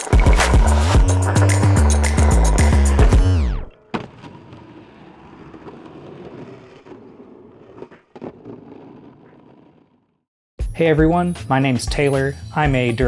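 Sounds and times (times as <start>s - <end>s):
music slowing to a stop: 0.0s - 3.7s
skateboard wheels rolling on concrete: 0.0s - 10.3s.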